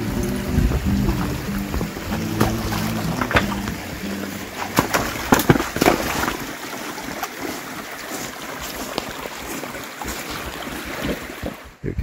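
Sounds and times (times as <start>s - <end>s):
wind buffeting microphone: 0.0s - 2.4s.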